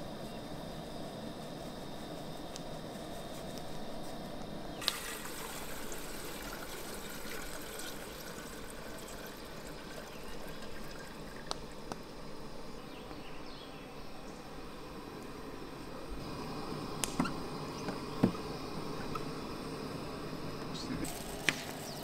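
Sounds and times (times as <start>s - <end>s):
water trickling into pot: 4.8s - 12.2s.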